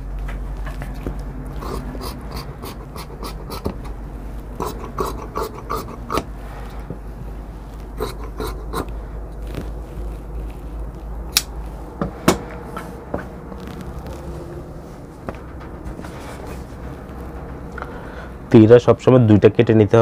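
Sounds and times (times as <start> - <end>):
scissors snipping fabric: 1.0 - 6.3, 7.7 - 14.2.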